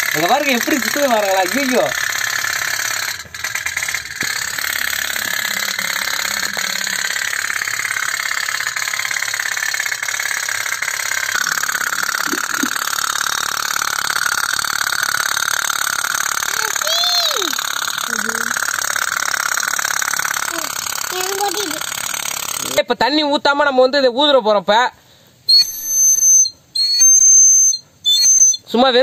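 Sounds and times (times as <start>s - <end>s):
toy steam boat putt-putting: 0.0s - 22.8s.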